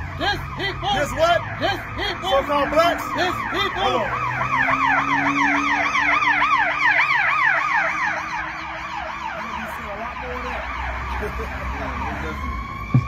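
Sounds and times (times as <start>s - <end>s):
emergency siren yelping: 0.0s - 13.0s.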